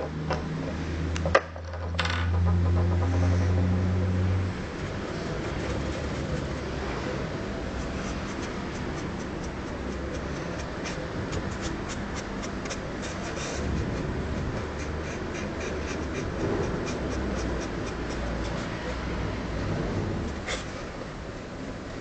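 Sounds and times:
pen scratching on a surface: 4.8s - 19.2s, 20.2s - 20.8s
low rumble: 19.0s - 20.4s.

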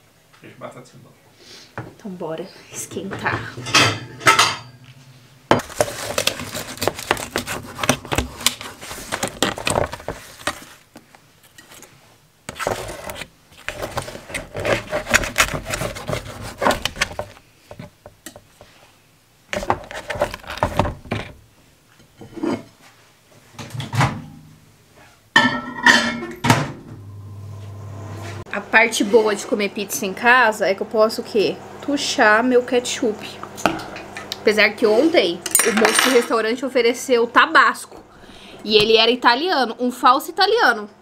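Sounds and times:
dishes and utensils clinking: 2.8s - 4.9s, 25.4s - 26.7s, 35.4s - 36.4s.

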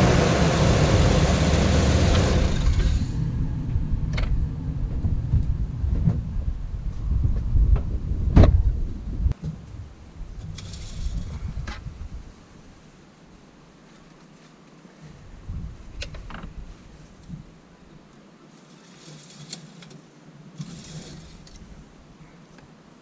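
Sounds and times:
engine running: 0.0s - 5.2s
low rumble: 0.0s - 10.4s.

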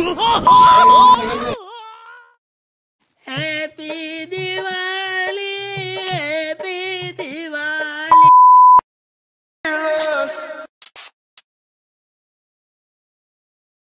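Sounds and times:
loud steady beep: 0.5s - 1.2s, 8.1s - 8.8s.

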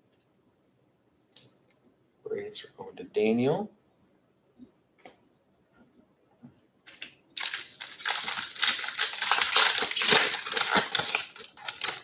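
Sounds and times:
foil wrapper tearing and crinkling: 6.9s - 12.0s.

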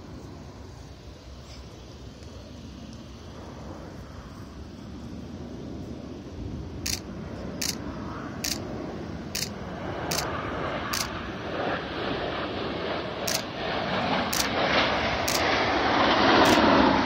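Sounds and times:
jet noise: 0.0s - 17.0s
camera shutter clicks: 6.9s - 7.8s, 8.4s - 8.6s, 9.4s - 10.3s, 10.9s - 11.1s, 13.3s - 13.5s, 15.3s - 15.5s, 16.4s - 16.7s.

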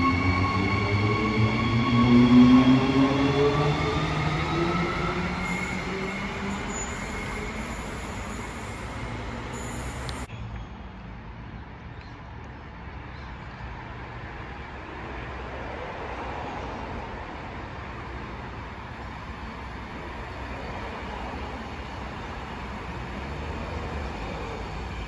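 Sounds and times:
distant train rumble: 0.0s - 10.3s, 17.8s - 25.0s
electric train pulling away: 0.0s - 10.3s, 17.9s - 25.0s.

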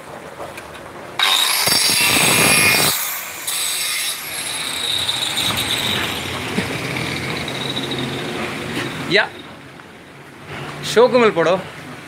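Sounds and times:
stone cutter disc whining: 1.2s - 9.6s.

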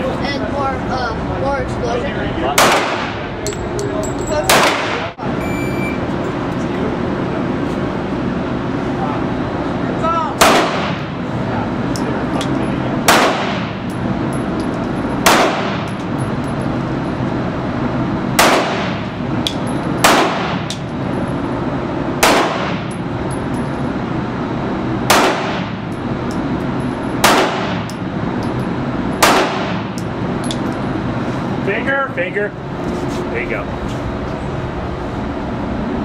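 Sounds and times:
steady background hum: 0.0s - 36.0s
handgun shots echoing indoors: 13.1s - 13.7s, 15.2s - 15.9s, 18.4s - 19.1s, 20.0s - 20.8s, 22.2s - 22.9s, 25.1s - 25.8s, 27.2s - 28.0s, 29.2s - 29.8s.

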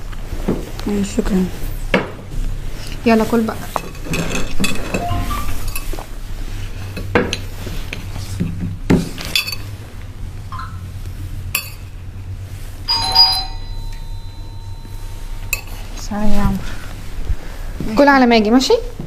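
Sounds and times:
bell-like chime: 5.0s - 5.8s, 12.9s - 15.4s.

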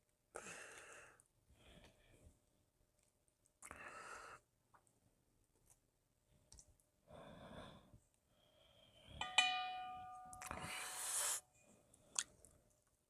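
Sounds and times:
chopsticks striking metal bowl: 9.2s - 10.6s
metal bowl ringing: 9.2s - 11.1s.

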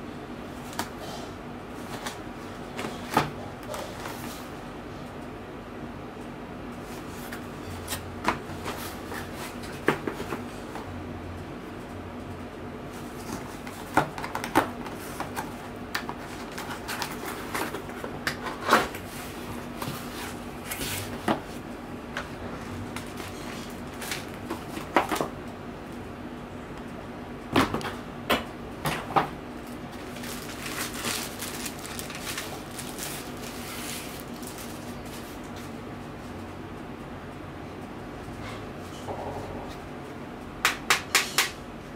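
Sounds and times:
plastic wrap rustling: 13.0s - 21.7s, 22.5s - 25.3s, 29.6s - 35.7s.

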